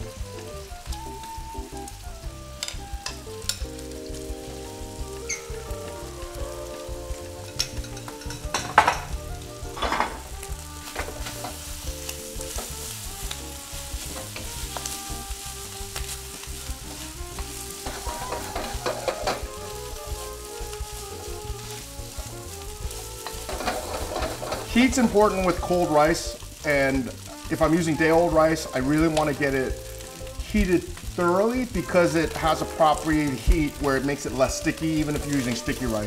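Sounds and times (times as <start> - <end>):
rice sizzling in a wok: 0.0 - 36.0
spatula scraping and knocking wok: 2.5 - 3.9, 7.2 - 27.8.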